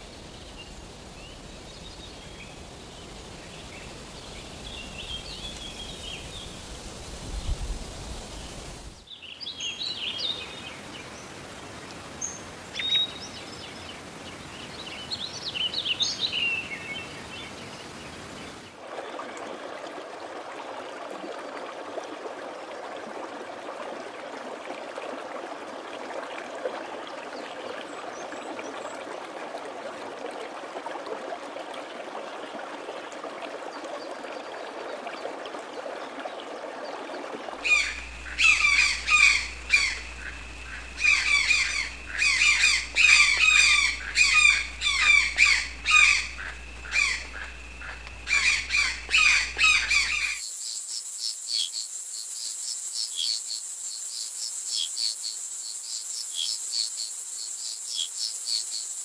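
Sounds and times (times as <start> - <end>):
running water hissing: 0.0 - 9.1, 36.9 - 59.0
parrot squawking: 37.6 - 40.3, 41.0 - 47.2, 48.3 - 50.4
insects trilling: 37.6 - 59.0.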